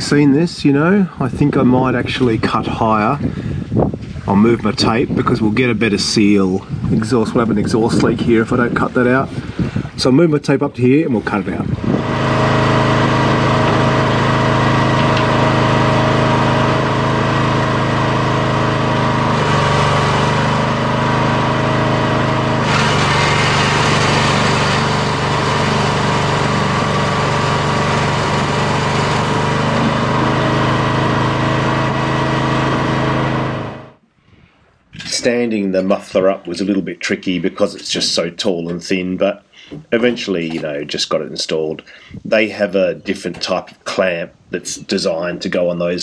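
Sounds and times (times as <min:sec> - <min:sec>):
small motor humming: 0:11.8 - 0:34.0.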